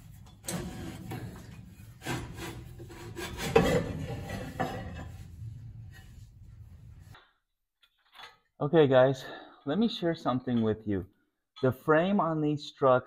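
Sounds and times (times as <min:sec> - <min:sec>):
metal cover scraping and rubbing: 0:00.0 - 0:07.2.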